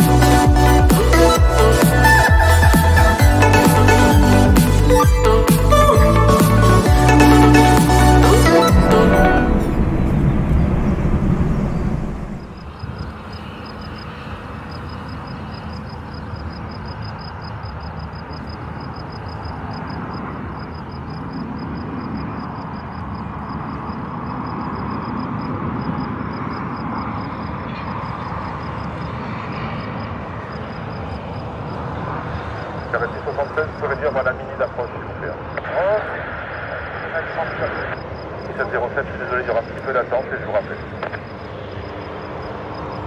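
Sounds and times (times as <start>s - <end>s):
jet engine rumble: 8.6s - 43.0s.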